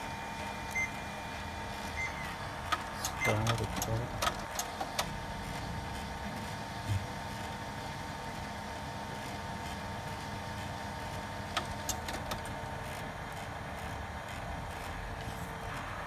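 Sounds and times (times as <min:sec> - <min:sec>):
laser printer humming and whining: 0:00.0 - 0:16.0
printer sharp clicks: 0:02.1 - 0:05.2, 0:11.4 - 0:12.6
printer thump: 0:06.8 - 0:07.2.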